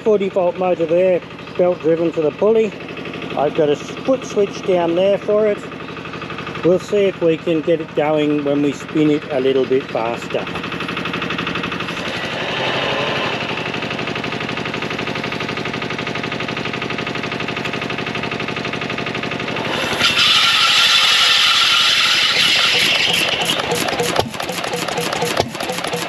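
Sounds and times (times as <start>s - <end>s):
stationary engine turning over: 10.0s - 26.0s.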